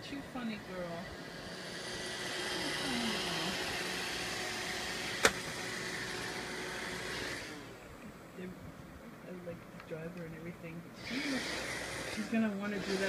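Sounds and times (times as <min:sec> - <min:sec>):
robot vacuum whirring: 0:00.4 - 0:07.8, 0:11.0 - 0:13.0
sharp click: 0:05.2 - 0:05.4.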